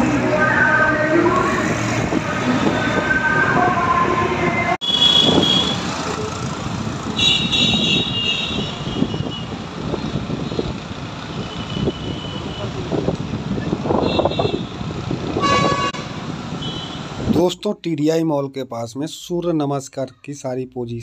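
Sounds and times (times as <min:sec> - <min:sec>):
road and wind noise: 0:00.0 - 0:18.4.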